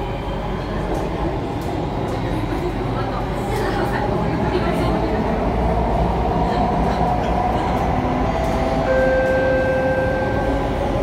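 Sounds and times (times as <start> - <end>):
steady train whine: 0.0 - 11.0
lower whine: 8.9 - 11.0.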